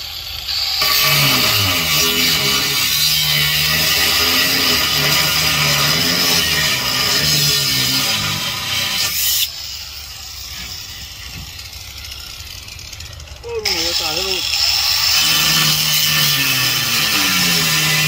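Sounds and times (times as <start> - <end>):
angle grinder cutting steel: 0.0 - 18.0.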